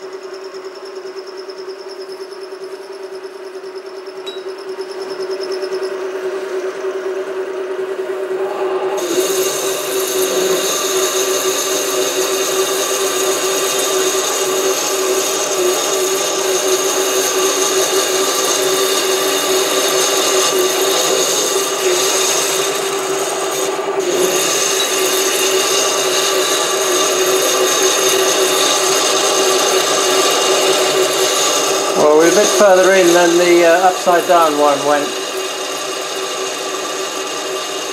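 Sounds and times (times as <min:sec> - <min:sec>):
lathe motor and spindle tone: 0:00.0 - 0:37.9
scraping hiss of cutting metal: 0:09.0 - 0:37.9.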